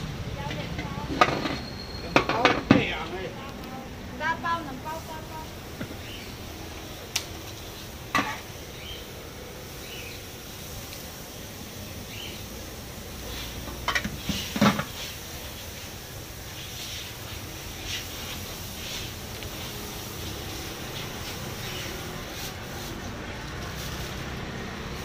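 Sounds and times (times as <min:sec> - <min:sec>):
street background noise: 0:00.0 - 0:25.0.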